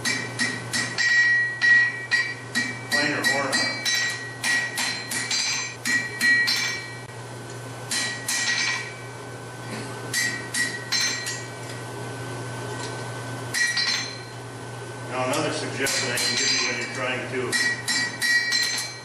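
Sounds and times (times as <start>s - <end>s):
hammer striking metal on anvil: 0.0s - 7.1s, 7.9s - 9.0s, 10.1s - 11.5s, 13.5s - 14.3s, 15.3s - 19.0s
low steady hum: 0.0s - 19.0s.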